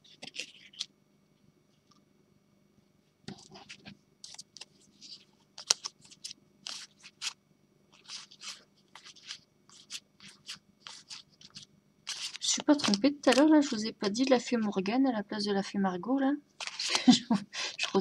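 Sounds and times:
cards sliding and scraping: 0.0s - 0.9s, 3.3s - 14.3s, 16.6s - 17.1s, 17.7s - 18.0s.

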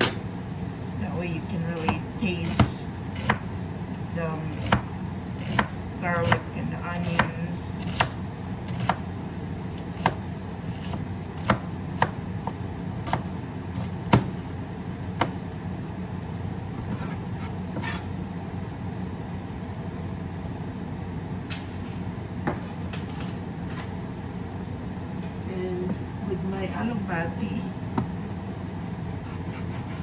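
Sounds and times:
steady low hum: 0.0s - 30.0s
knife chopping on cutting board: 4.5s - 4.8s, 5.4s - 6.4s, 7.1s - 9.0s, 10.0s - 14.4s, 29.2s - 30.0s.

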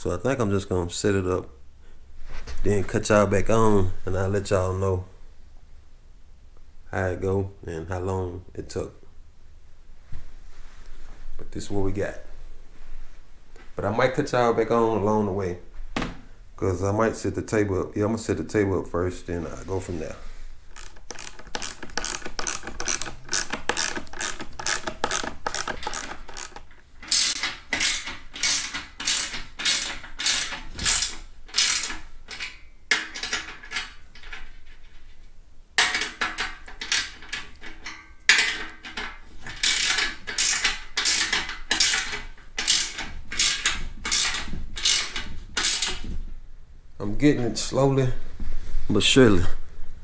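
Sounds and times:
ratcheting wrench clicking: 20.7s - 34.4s, 35.8s - 46.1s.

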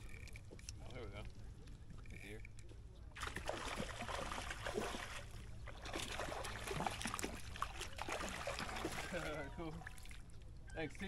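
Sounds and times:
fish splashing in water: 3.2s - 10.3s.

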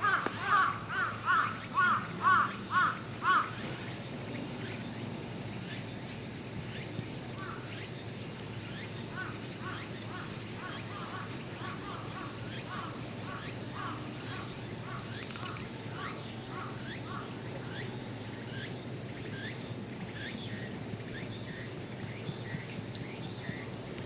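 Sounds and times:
crow cawing: 0.0s - 3.6s, 9.2s - 15.1s.

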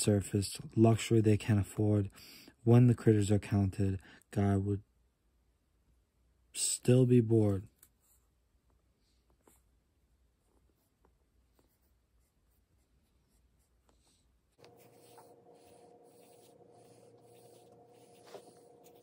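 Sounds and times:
pencil scratching on paper: 10.6s - 19.0s
low steady hum: 12.0s - 19.0s.

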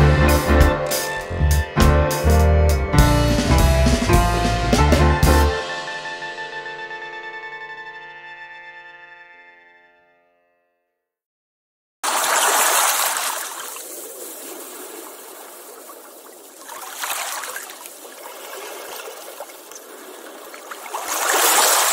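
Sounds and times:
running splashing water: 12.0s - 21.9s.

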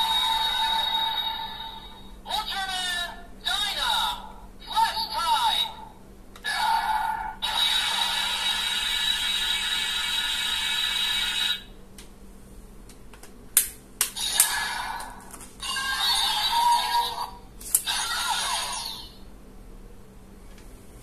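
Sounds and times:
toy electronic sound effect: 0.0s - 2.1s, 14.2s - 19.2s.

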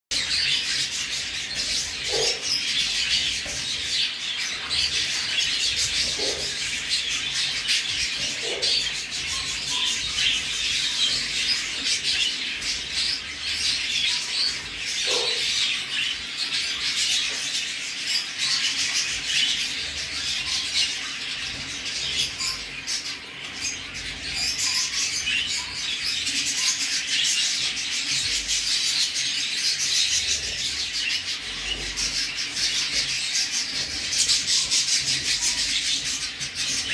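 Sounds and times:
chicks cheeping: 0.1s - 36.9s.

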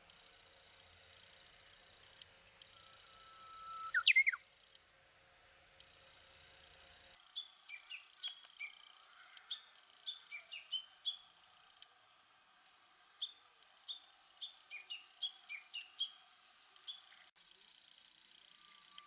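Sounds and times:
bird whistling song: 2.8s - 4.4s, 7.4s - 11.2s, 13.2s - 16.2s
short high bird chirps: 3.1s - 4.4s.

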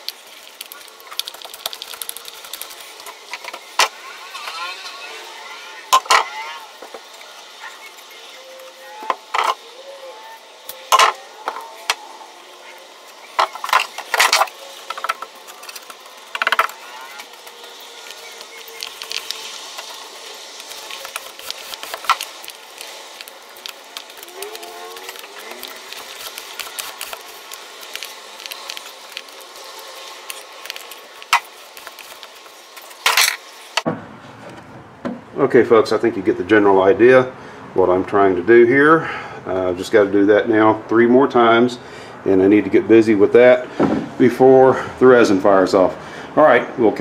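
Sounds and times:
steady hiss: 0.0s - 33.9s.

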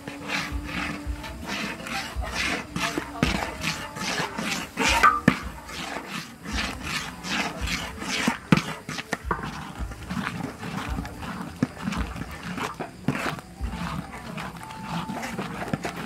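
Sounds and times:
metal spatula scraping wok: 0.0s - 16.0s.

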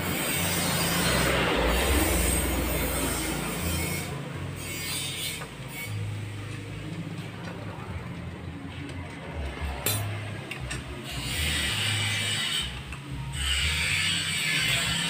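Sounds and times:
metal tool clinking and scraping: 8.8s - 15.0s.

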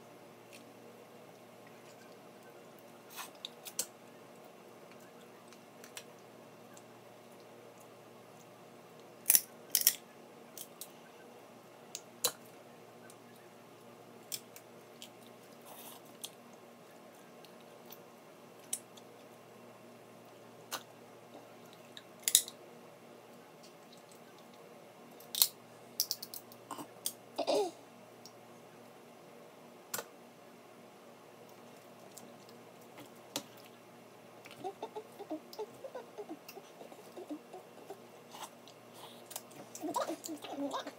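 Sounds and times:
crab shells cracking: 9.2s - 10.0s, 25.2s - 26.6s.

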